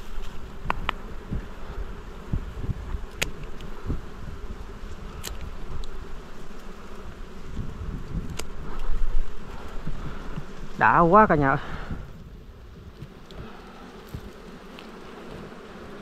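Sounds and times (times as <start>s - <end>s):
bee swarm buzzing: 0.0s - 16.0s.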